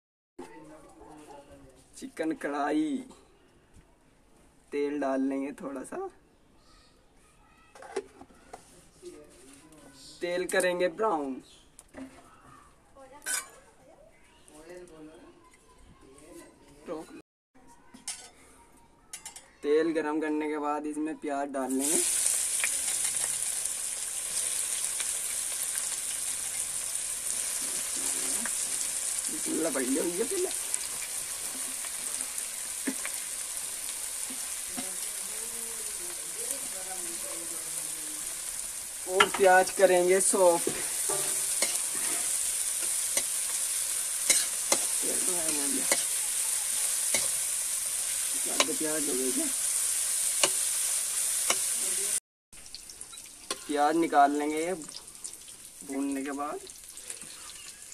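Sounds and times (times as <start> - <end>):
onions sizzling in hot oil: 21.6 - 57.9
spatula scraping metal pan: 39.2 - 47.5.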